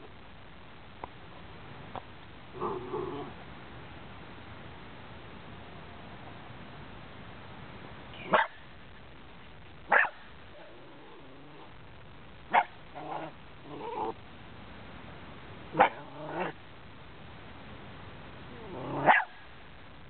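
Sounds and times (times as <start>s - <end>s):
dog barking: 8.2s - 8.6s, 9.9s - 10.3s, 12.5s - 12.8s, 15.8s - 16.1s, 19.0s - 19.4s
dog yipping: 8.2s - 8.6s, 9.9s - 10.2s, 19.0s - 19.4s.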